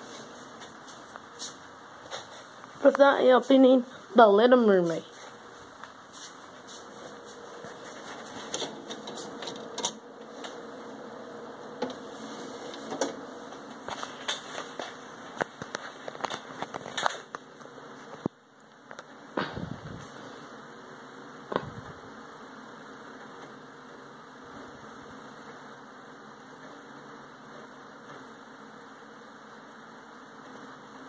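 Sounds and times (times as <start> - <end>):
computer humming: 0.0 - 31.0
disc clicks and knocks: 8.4 - 10.7, 11.7 - 12.0, 12.6 - 19.1.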